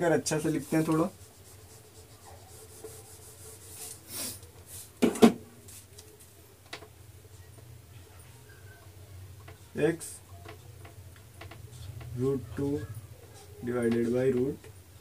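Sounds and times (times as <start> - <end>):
duster rubbing on whiteboard: 0.5 - 4.9.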